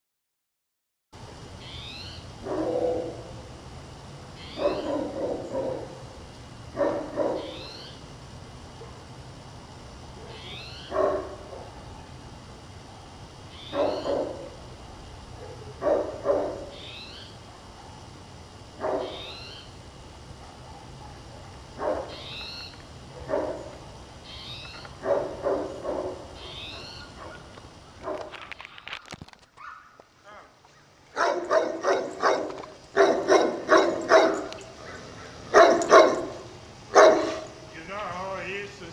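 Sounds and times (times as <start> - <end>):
dog barking: 2.4 - 3.3, 4.6 - 6.0, 6.7 - 7.6, 10.2 - 12.1, 13.7 - 14.6, 15.4 - 16.8, 18.8 - 19.2, 20.4 - 22.2, 23.2 - 23.7, 25.0 - 26.3, 27.2 - 27.4, 31.1 - 37.5.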